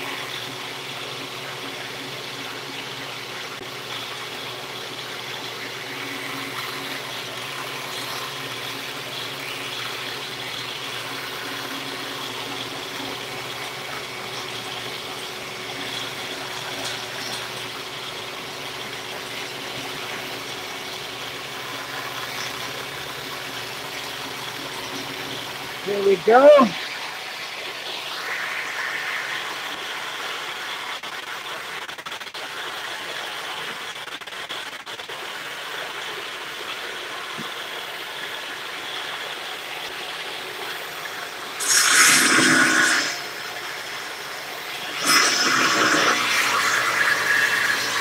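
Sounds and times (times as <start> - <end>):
table saw running: 41.6 - 43.5, 44.8 - 48.0.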